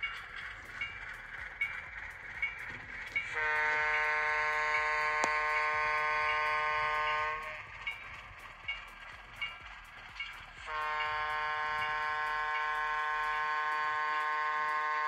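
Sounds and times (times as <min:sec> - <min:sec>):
model train wheels clicking: 0:00.0 - 0:15.0
locomotive air horn blast: 0:03.3 - 0:07.6, 0:10.7 - 0:15.0.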